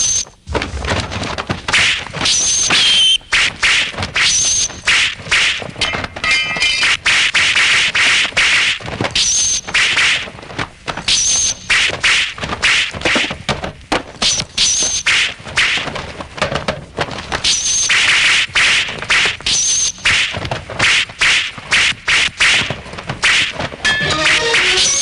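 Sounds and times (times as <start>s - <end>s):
music: 23.9s - 25.0s
sword blades clashing: 23.9s - 25.0s.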